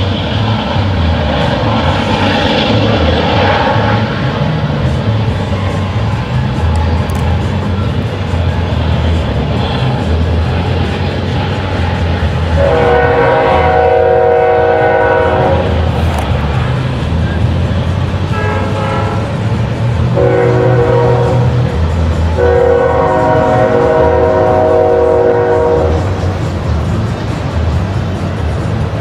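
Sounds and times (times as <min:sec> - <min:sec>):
rail cars rumbling past: 0:00.0 - 0:29.0
train horn blasts: 0:12.4 - 0:16.0, 0:18.2 - 0:26.3.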